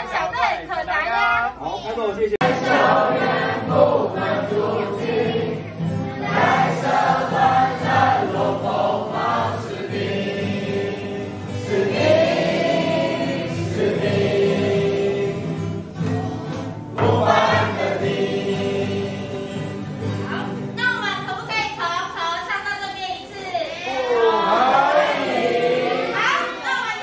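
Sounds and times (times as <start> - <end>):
voices singing in unison: 2.4 - 16.1, 17.0 - 20.3, 23.7 - 27.0
acoustic guitars strumming: 2.4 - 22.6.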